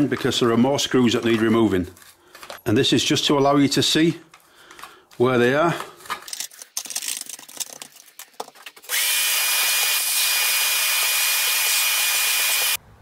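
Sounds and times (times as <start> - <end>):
stiff brush scrubbing plastic: 4.8 - 9.0
vacuum cleaner running: 8.9 - 12.8.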